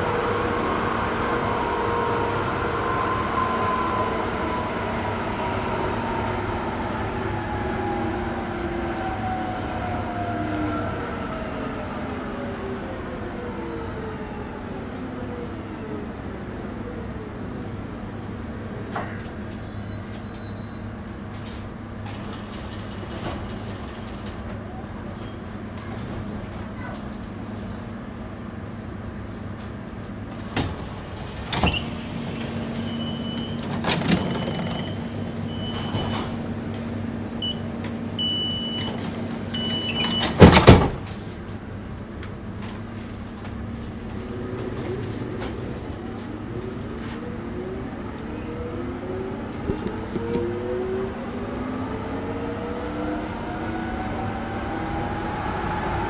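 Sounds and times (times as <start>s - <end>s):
high beeping signal: 37.4s - 38.9s
doors shutting thump: 40.0s - 41.1s.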